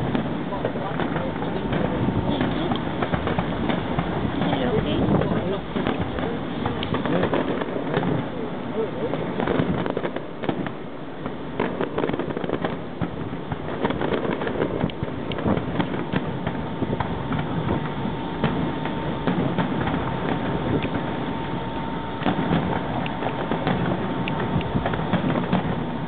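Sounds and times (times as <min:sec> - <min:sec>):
distant fireworks bangs and crackling: 0:00.0 - 0:26.0.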